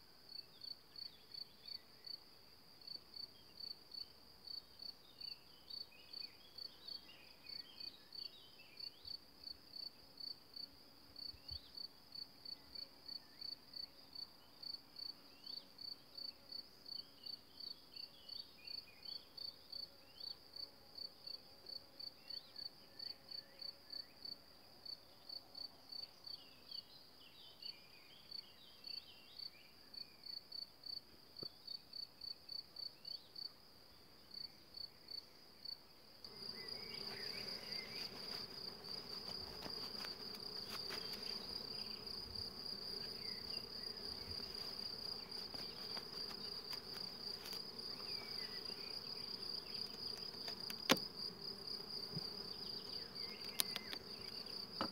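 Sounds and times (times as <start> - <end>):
cricket chirping: 0.0 - 54.9
high insect trill: 34.3 - 54.9
bees buzzing: 36.3 - 54.9.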